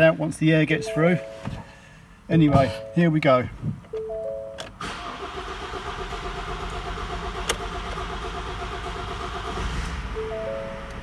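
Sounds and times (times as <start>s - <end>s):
dashboard warning chime: 0.7s - 1.6s, 2.3s - 3.2s, 4.0s - 4.7s, 10.1s - 11.0s
diesel engine cranking and starting: 4.8s - 11.0s.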